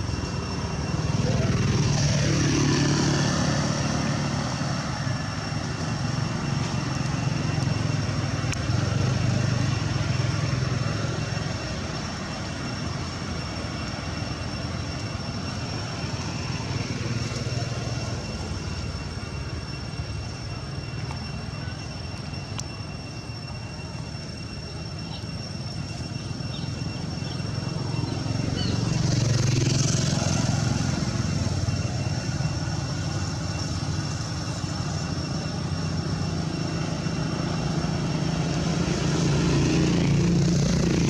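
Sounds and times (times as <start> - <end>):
thin steady high tone: 0.0 - 41.0.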